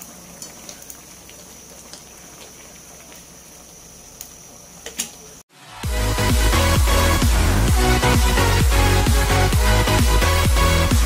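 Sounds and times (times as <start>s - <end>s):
food simmering in a pan: 0.0s - 5.5s.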